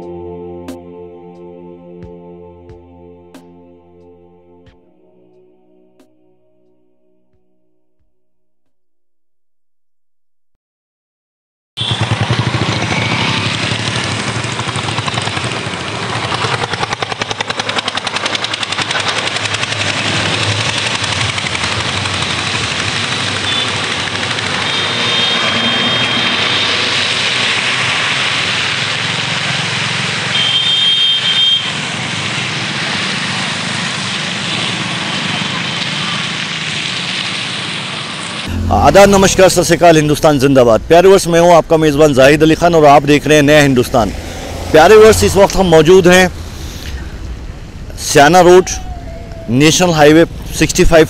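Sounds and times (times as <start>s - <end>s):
car horn: 11.8s - 12.1s, 23.4s - 27.0s, 30.3s - 31.8s
highway traffic: 11.8s - 51.0s.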